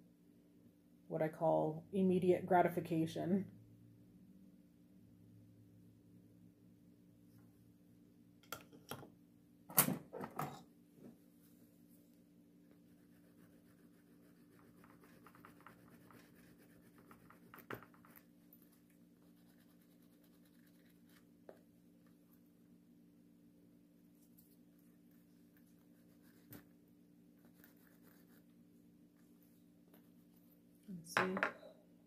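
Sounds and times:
wooden burnisher rubbing leather: 13.0 - 18.2.

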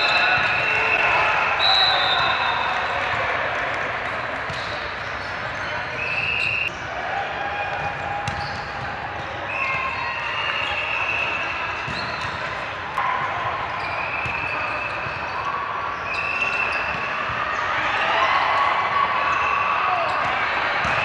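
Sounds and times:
general hubbub: 0.0 - 21.0
sneakers squeaking on floor: 4.3 - 6.8, 7.7 - 12.7, 13.7 - 17.6.

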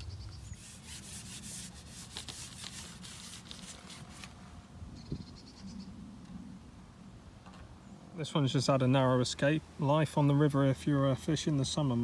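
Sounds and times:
fishing pole rubbing and scraping: 0.0 - 4.4.

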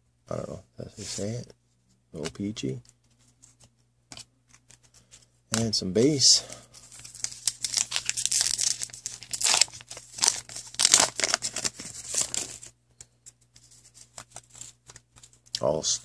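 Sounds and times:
wrapper tearing and crumpling: 6.9 - 12.7.

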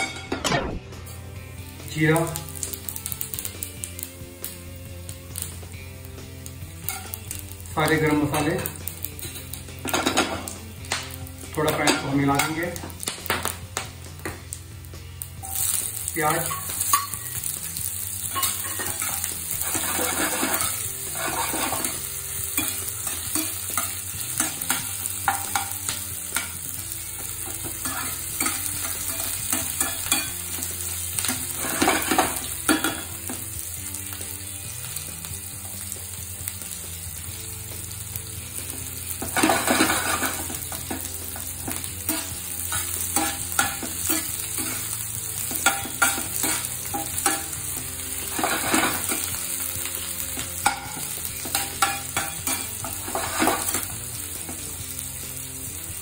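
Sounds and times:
onions sizzling in oil: 1.0 - 56.0
metal spatula scraping pan: 18.2 - 26.6, 27.5 - 33.2, 39.2 - 47.6, 48.2 - 49.4, 50.4 - 54.0.

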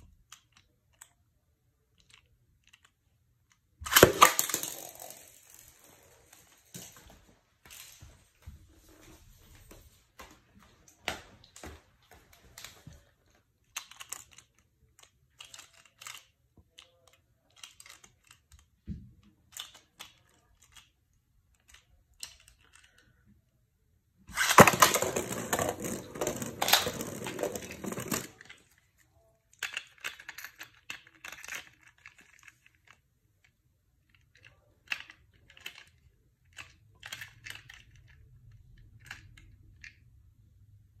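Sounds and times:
spinning top scraping on plastic: 3.9 - 6.2, 24.3 - 28.4
plastic clicks and rattles: 24.3 - 40.1.

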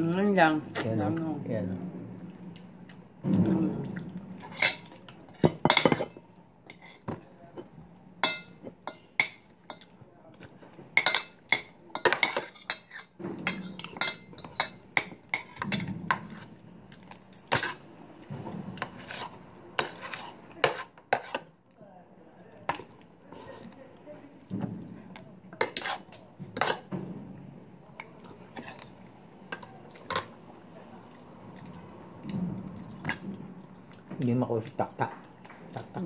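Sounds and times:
spoons clinking on ceramic bowls: 4.5 - 6.9, 8.2 - 9.9, 11.0 - 15.8.

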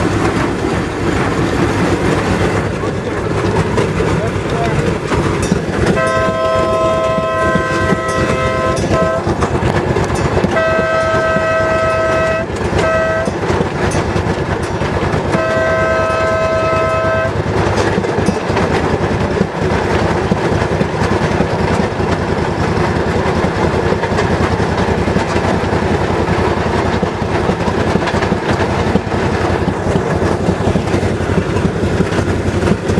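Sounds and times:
wheels clicking over rail joints: 0.0 - 32.9
horn blasts: 5.9 - 9.5, 10.4 - 13.5, 15.3 - 17.4.

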